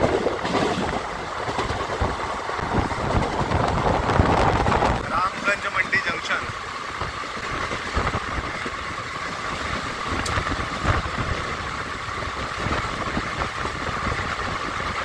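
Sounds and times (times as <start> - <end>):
train coach rumble: 0.0 - 15.0.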